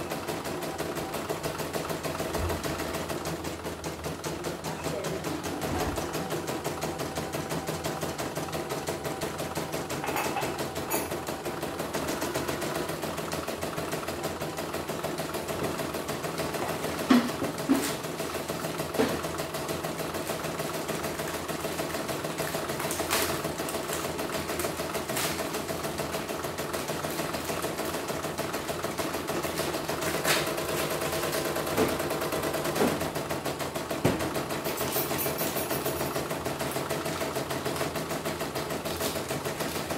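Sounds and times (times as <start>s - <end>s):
embroidery machine stitching: 0.0s - 39.9s
motor hum: 0.0s - 39.9s.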